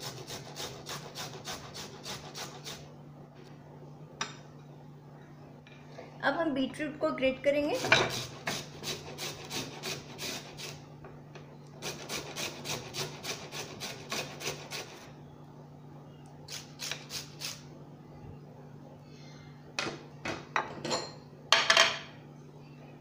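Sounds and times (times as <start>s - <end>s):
grater rasping strokes: 0.0s - 2.9s, 7.8s - 10.8s, 11.8s - 15.1s.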